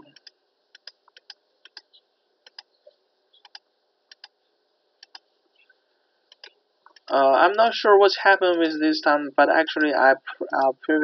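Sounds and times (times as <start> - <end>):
computer mouse clicks: 0.0 - 4.4, 5.0 - 5.7, 6.3 - 7.1.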